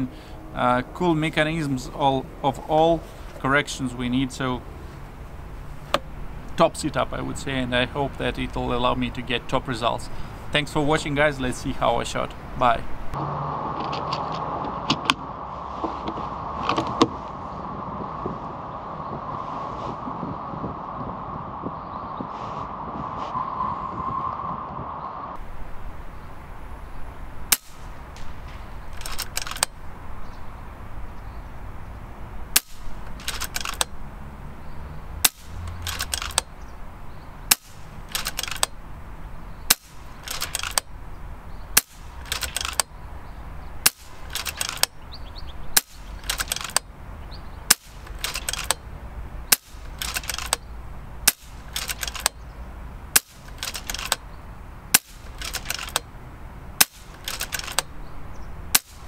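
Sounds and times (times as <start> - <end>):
metallic rattle of rifle action: 27.5 - 29.8, 32.6 - 33.9, 35.3 - 36.5, 37.5 - 38.8, 39.7 - 40.9, 41.8 - 42.9, 43.8 - 45.0, 45.8 - 46.9, 47.7 - 48.8, 49.5 - 52.5, 53.1 - 54.3, 54.9 - 56.1, 56.8 - 57.9
air rifle cracks: 37.5 - 38.8, 49.5 - 52.4, 53.1 - 54.2, 54.9 - 56.1, 56.8 - 57.9.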